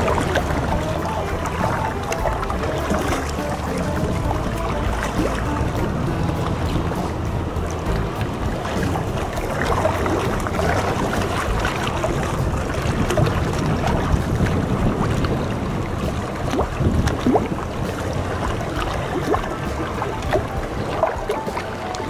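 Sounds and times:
choppy water lapping: 0:00.0 - 0:22.0
gusty wind on microphone: 0:00.0 - 0:22.0.

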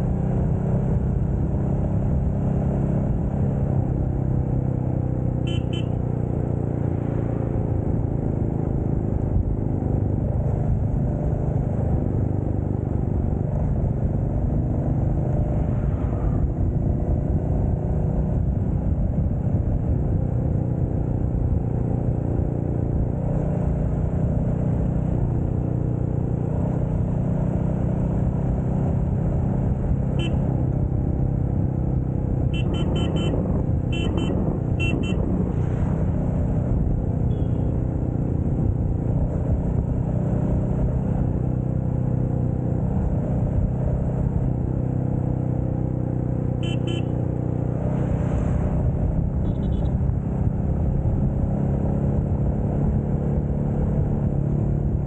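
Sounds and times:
motorcycle engine cruising: 0:00.0 - 0:55.0
wind rumble on microphone: 0:08.8 - 0:23.2, 0:28.2 - 0:45.7, 0:47.6 - 0:55.0
short high-pitched beeps: 0:32.6 - 0:35.2.

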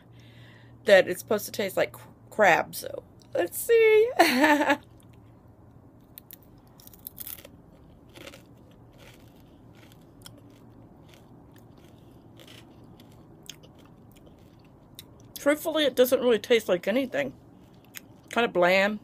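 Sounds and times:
crisp crunching and chewing: 0:06.0 - 0:15.4.

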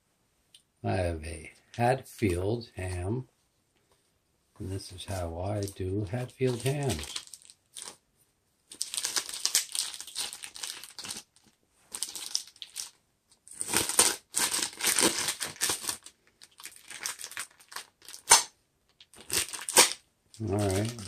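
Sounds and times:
plastic packaging crinkling: 0:05.5 - 0:08.0, 0:08.7 - 0:21.0.

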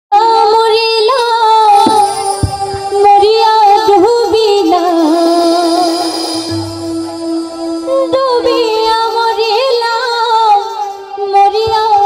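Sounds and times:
woman singing into microphone: 0:00.1 - 0:12.0.

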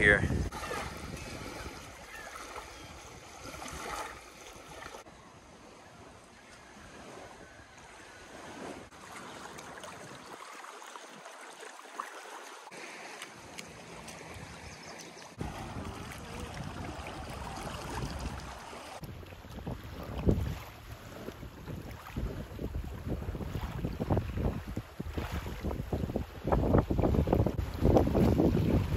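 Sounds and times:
wind on microphone: 0:00.0 - 0:04.2, 0:15.4 - 0:28.9
waves lapping on sand: 0:00.0 - 0:28.9.

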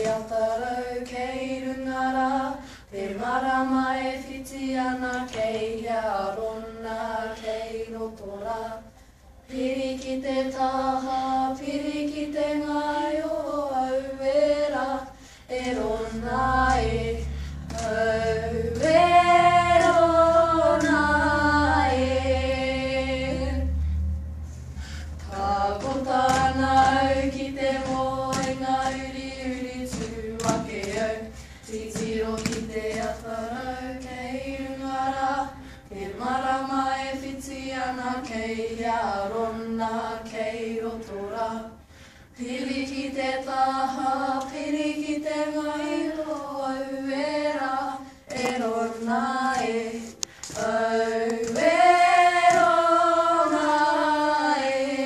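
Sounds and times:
girls singing in unison: 0:00.0 - 0:55.0
poi balls tapping: 0:16.6 - 0:21.3, 0:25.2 - 0:33.3.

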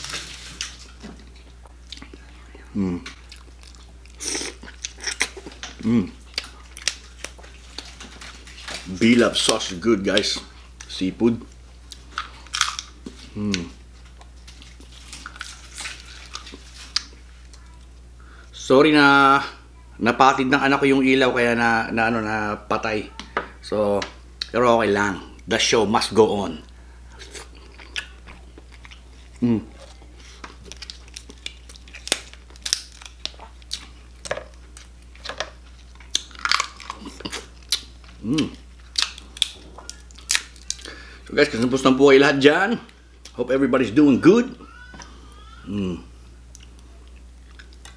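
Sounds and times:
person chewing: 0:00.0 - 0:08.9, 0:10.2 - 0:17.6, 0:26.7 - 0:41.3, 0:45.0 - 0:47.9
person humming: 0:02.4 - 0:03.2, 0:05.8 - 0:06.2, 0:13.3 - 0:13.8, 0:29.4 - 0:29.9, 0:44.7 - 0:46.1
crab shell cracking: 0:12.0 - 0:14.4, 0:30.4 - 0:41.0.

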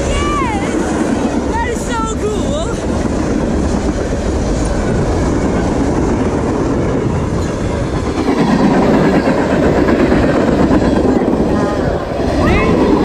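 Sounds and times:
steel wheels on rail: 0:02.8 - 0:13.0.

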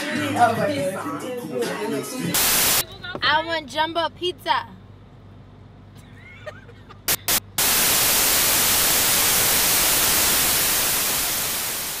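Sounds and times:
white noise static: 0:02.4 - 0:02.9, 0:07.1 - 0:12.0.

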